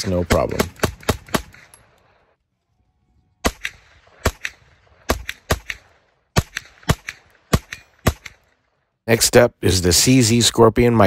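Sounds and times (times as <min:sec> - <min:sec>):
gunshots with echo: 0:00.0 - 0:01.7, 0:03.4 - 0:08.5.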